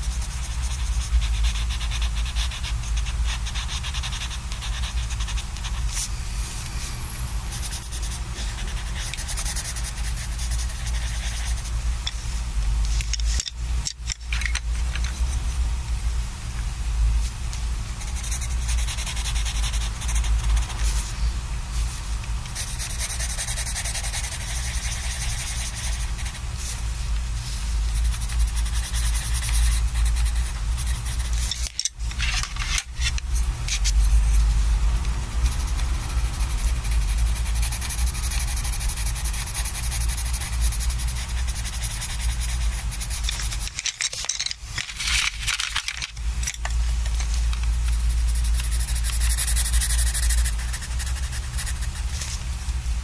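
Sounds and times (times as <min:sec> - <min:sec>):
pencil scratching on paper: 0:00.0 - 0:06.1, 0:07.5 - 0:11.8, 0:18.0 - 0:21.1, 0:22.5 - 0:26.7, 0:27.9 - 0:31.8, 0:35.3 - 0:43.8, 0:47.9 - 0:52.8.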